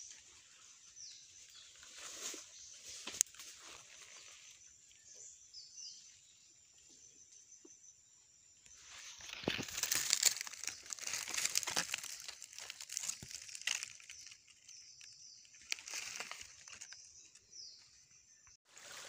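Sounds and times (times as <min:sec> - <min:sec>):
dry leaves and brush rustling: 0:00.0 - 0:04.6, 0:08.8 - 0:17.6, 0:18.7 - 0:19.0.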